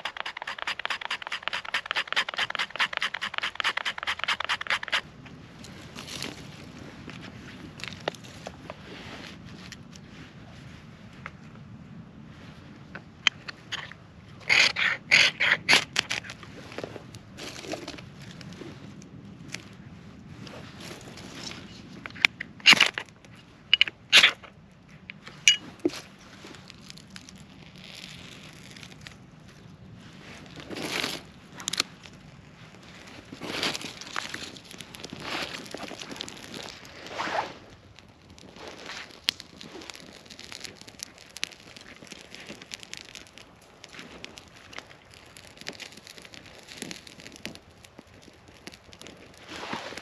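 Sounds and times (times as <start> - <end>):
knife scraping ferro rod: 0.0 - 5.0, 14.4 - 16.3
twigs rustling and snapping: 0.0 - 8.8, 13.2 - 19.8, 20.8 - 29.6, 30.2 - 50.0
fire crackling and popping: 0.0 - 50.0.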